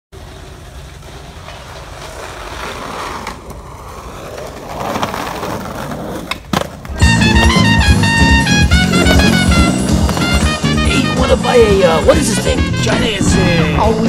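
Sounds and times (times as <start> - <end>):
skateboard wheels rolling on concrete: 0.1 - 14.0
skateboard clacking on ground: 0.2 - 7.7, 8.8 - 11.0.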